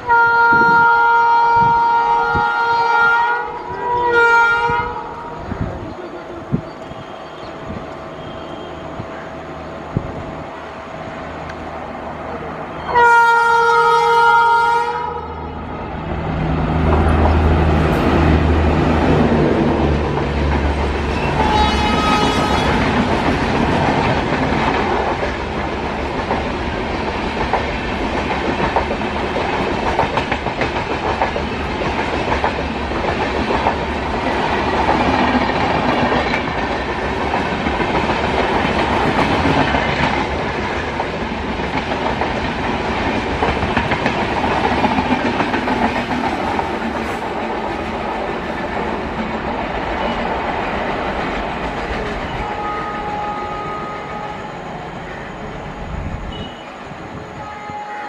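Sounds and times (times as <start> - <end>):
locomotive hum: 0.0 - 58.0
brief tone: 6.7 - 9.3, 54.3 - 57.7
train wheels clickety-clack: 16.8 - 53.2.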